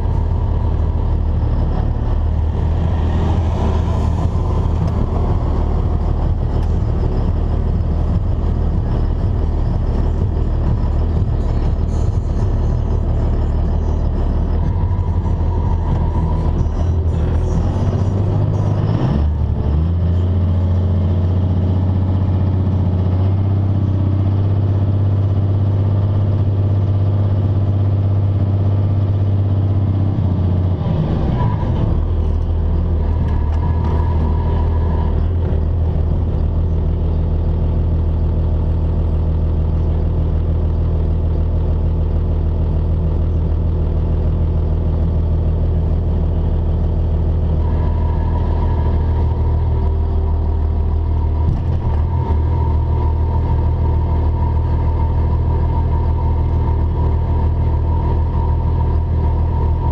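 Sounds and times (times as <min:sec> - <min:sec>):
diesel engine heard from cab: 0:00.0 - 0:59.9.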